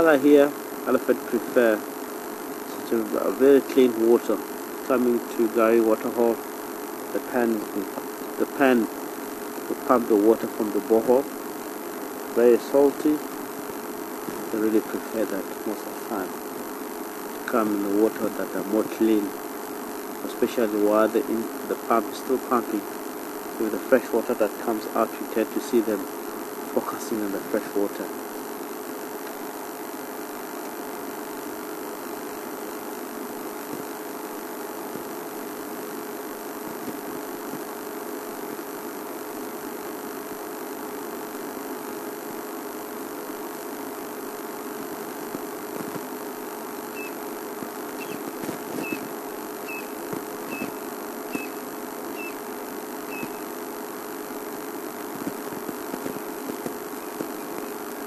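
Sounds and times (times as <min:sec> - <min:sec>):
low mechanical hum: 0:00.0 - 0:58.0
bird chirping: 0:47.0 - 0:47.2, 0:48.0 - 0:48.2, 0:48.8 - 0:52.4, 0:53.1 - 0:53.4.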